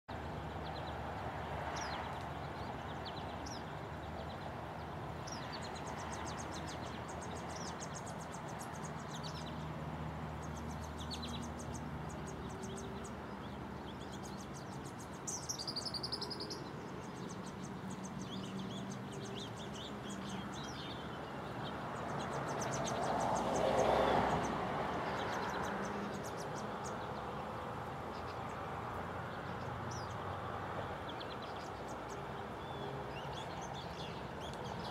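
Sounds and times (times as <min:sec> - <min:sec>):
birds chirping and trilling: 0:00.1 - 0:34.9
broad rush of noise: 0:00.1 - 0:34.9.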